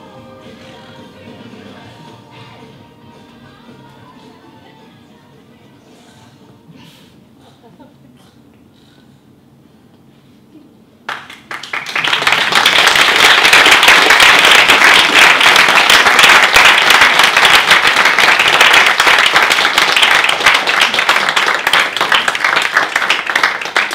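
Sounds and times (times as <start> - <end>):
audience applause: 11.1 - 23.9.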